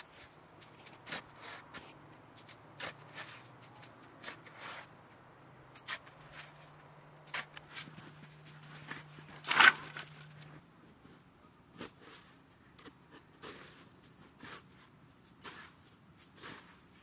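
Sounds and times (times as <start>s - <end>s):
shovel scraping snow: 0.0s - 5.0s, 5.8s - 10.5s, 13.4s - 17.0s.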